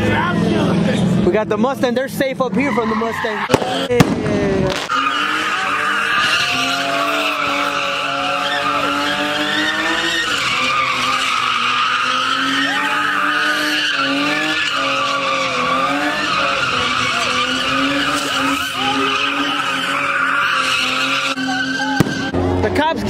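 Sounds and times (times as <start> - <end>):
car engine at high revs: 0.0 - 23.0
tyres screeching: 2.4 - 4.0, 4.6 - 22.6.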